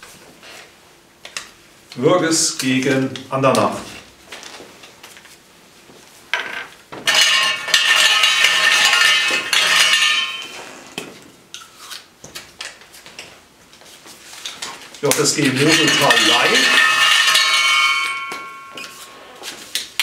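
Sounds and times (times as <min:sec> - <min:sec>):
lots rattling in metal cup: 0:15.1 - 0:17.6.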